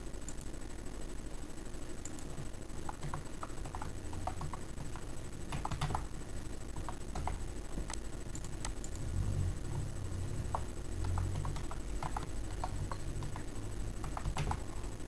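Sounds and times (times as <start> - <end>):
typing on a keyboard: 2.8 - 6.1, 6.8 - 9.0, 10.5 - 14.8.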